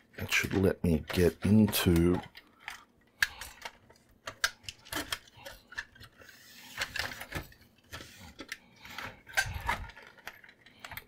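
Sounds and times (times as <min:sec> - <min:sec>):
rubbing scrape: 0:06.2 - 0:07.2.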